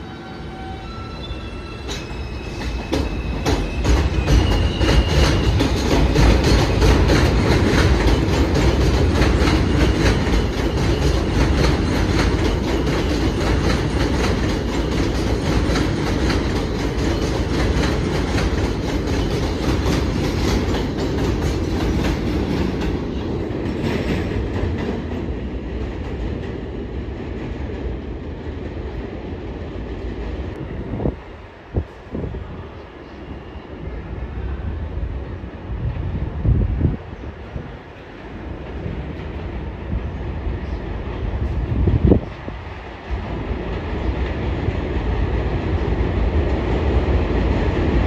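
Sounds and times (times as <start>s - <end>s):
train wheels clicking over rail joints: 1.8s - 26.6s.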